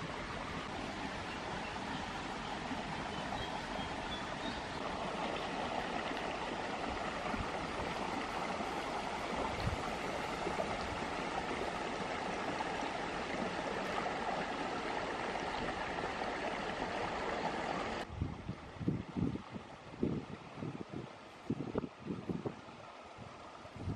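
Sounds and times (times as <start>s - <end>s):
wind buffeting microphone: 0.0s - 12.6s, 18.0s - 23.9s
stream running over stones: 0.0s - 23.9s.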